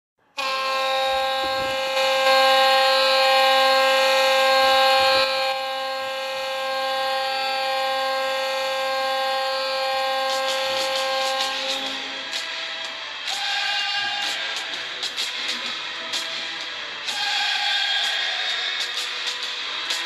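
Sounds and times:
goal horn blast: 0.3 - 12.5.

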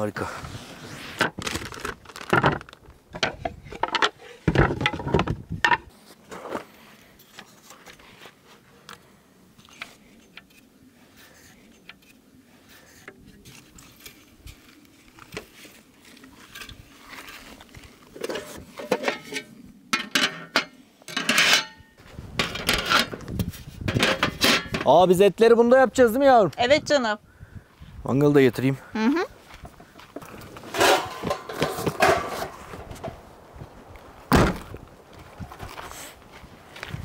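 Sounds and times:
metal table frame clattering: 18.2 - 21.8, 30.7 - 32.6.

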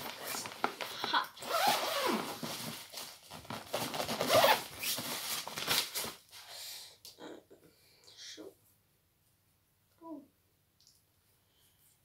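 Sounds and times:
clothes and suitcase rustling: 0.0 - 6.2.

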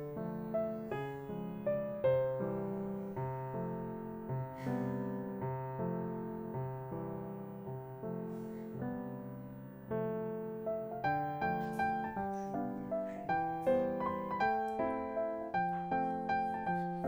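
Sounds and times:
soft piano music: 0.0 - 17.0.

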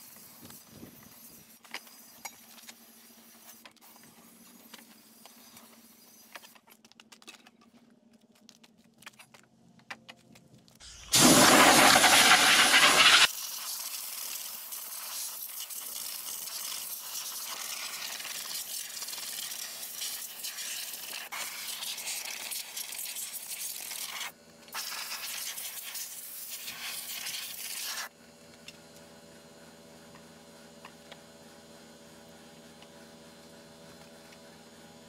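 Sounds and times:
compressed air hissing from hose: 0.0 - 6.4, 10.8 - 28.1.

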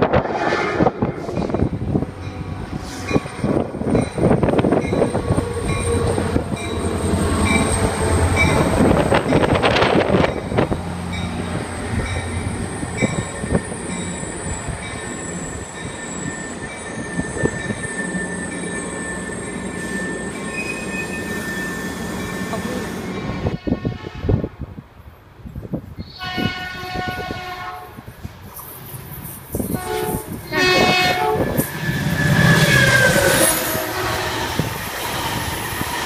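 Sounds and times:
train wheels rumbling on rails: 0.0 - 24.4, 25.5 - 36.0
high wheel squeal: 12.7 - 23.5, 30.5 - 36.0.

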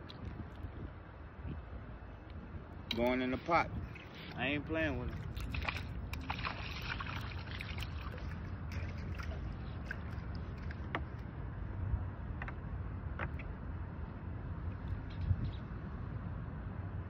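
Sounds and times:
wind rumble on microphone: 0.0 - 17.0
water lapping: 2.9 - 11.4.

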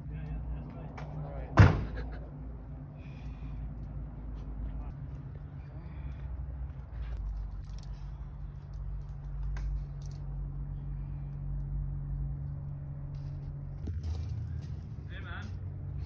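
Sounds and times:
low steady hum: 0.0 - 16.0
faint clicks and rustles: 3.7 - 10.5.

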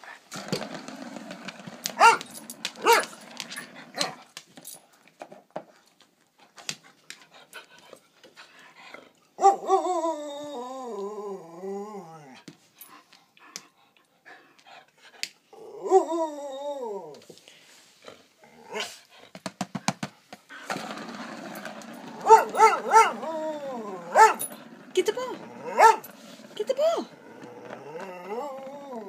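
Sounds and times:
dog growling low: 0.0 - 4.3, 8.8 - 12.5, 18.0 - 19.0, 20.6 - 29.0
dog whining: 1.6 - 4.2, 21.4 - 29.0
dog yelping: 1.9 - 4.2, 22.1 - 26.1.

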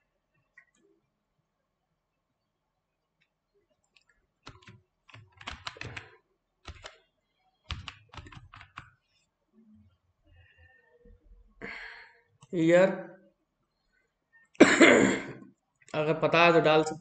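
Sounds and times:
computer keyboard typing: 3.9 - 7.0, 7.7 - 9.0.

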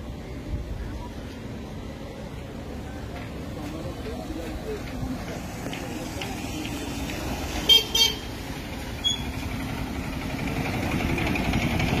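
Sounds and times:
road traffic: 0.0 - 12.0
vehicle horn toots: 7.7 - 8.3.

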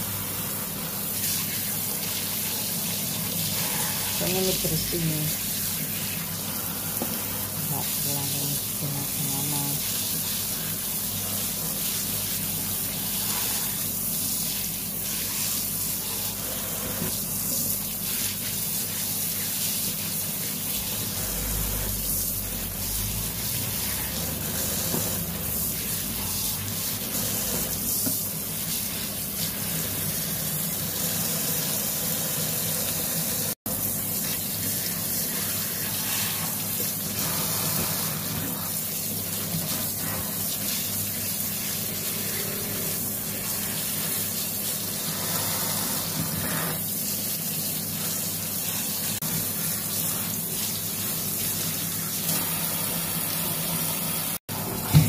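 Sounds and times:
tap running into sink: 54.6 - 55.0.

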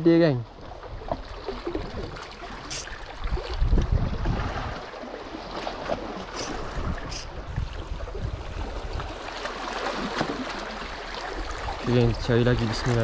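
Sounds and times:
wind rumbling on microphone: 0.7 - 4.9, 6.0 - 9.3, 11.2 - 13.0
waves splashing against rocks: 1.0 - 13.0.

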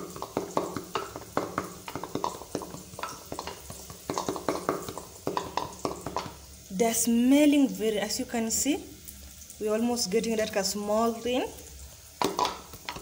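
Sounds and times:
wooden pestle pounding in mortar: 0.0 - 6.4.

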